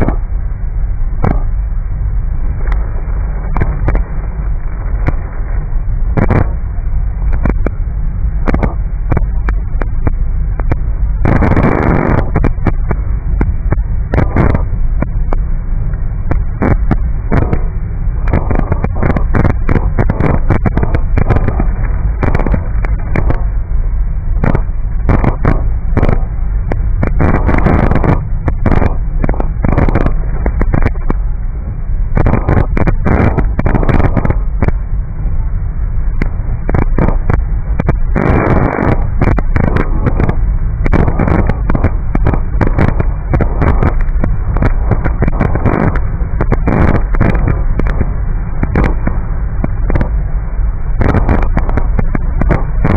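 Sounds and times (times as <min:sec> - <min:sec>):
moving car rumble: 0:00.0 - 0:52.9
heavy rain on car windshield: 0:18.3 - 0:23.6, 0:51.1 - 0:52.9.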